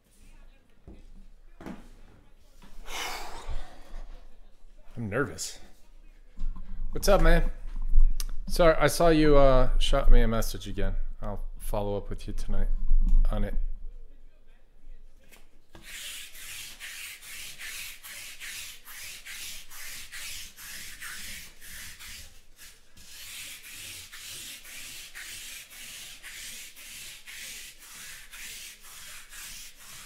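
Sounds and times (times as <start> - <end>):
scratchy rubbing strokes: 15.8 - 30.0.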